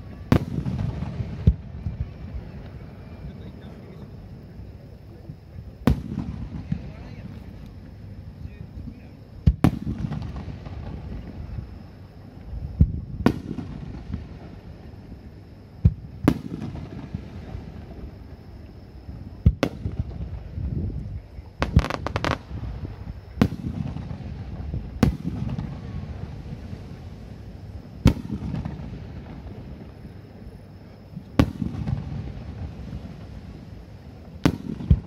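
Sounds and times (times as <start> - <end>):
crackling firework reports: 0.0 - 35.0.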